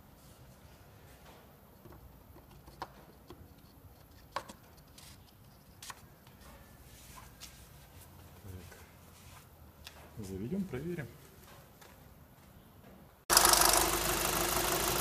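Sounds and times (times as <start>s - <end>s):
faint steady background noise: 0.0s - 13.3s.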